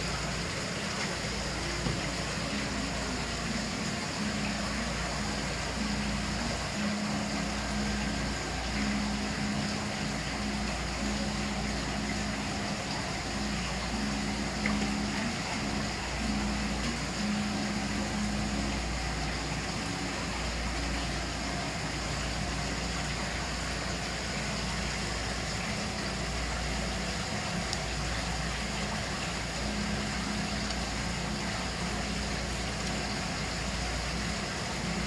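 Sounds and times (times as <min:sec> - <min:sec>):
low hum and rumble: 0:00.0 - 0:35.0
steady background hiss: 0:00.0 - 0:35.0.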